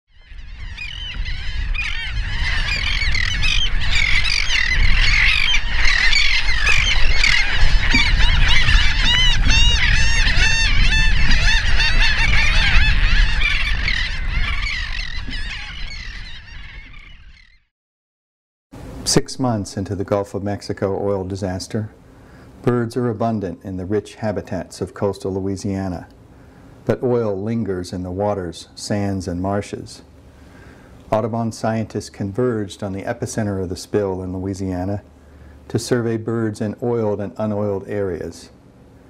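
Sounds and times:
waterbirds calling: 0.1s - 17.7s, 19.1s - 39.0s.

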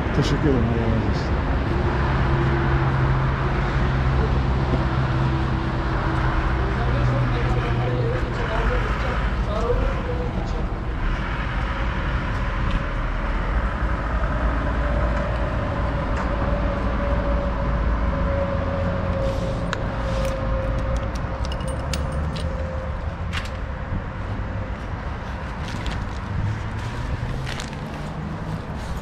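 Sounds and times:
vehicle engine rumbling: 0.0s - 29.0s.

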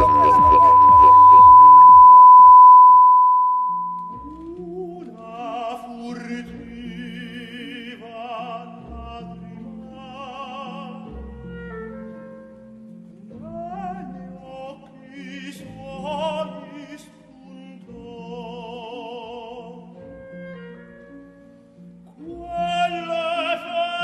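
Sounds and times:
electronic beep: 0.0s - 4.4s
orchestral backing music: 4.1s - 24.0s.

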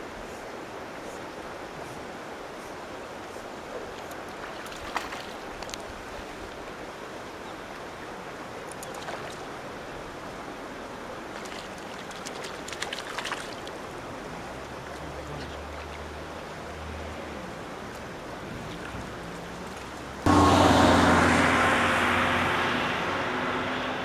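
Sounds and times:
fish splashing at water surface: 4.4s - 5.8s, 8.8s - 9.5s, 11.3s - 13.8s
steady outdoor rush: 5.1s - 24.0s.

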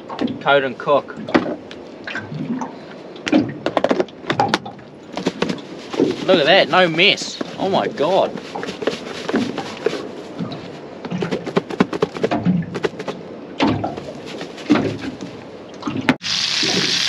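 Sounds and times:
fish rattling in plastic container: 5.1s - 13.2s.

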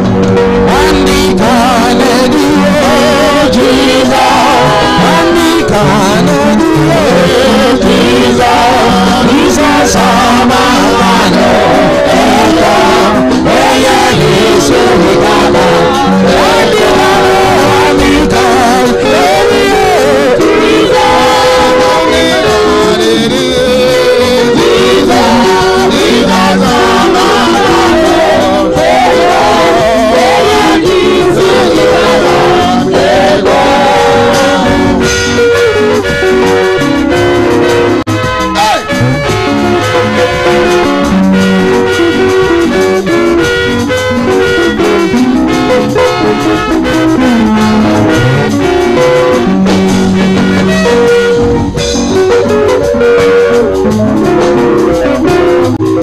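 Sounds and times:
live gospel music with singing: 0.0s - 56.0s.

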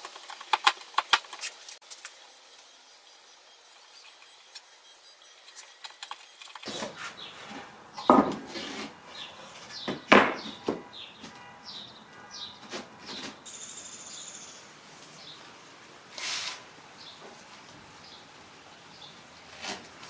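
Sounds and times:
wood scraping: 5.9s - 11.5s, 12.5s - 13.5s, 16.1s - 17.4s, 19.5s - 20.0s
wooden knocks: 8.0s - 8.5s.

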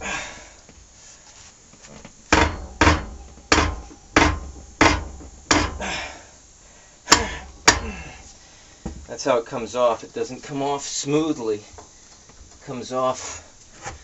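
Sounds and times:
nut cracking loose under breaker bar: 7.1s - 8.1s.

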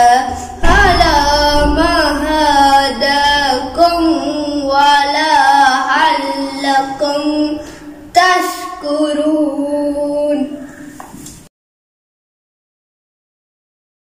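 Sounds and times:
boy chanting melodically: 0.0s - 10.8s
breath: 7.6s - 8.8s, 10.6s - 11.2s.

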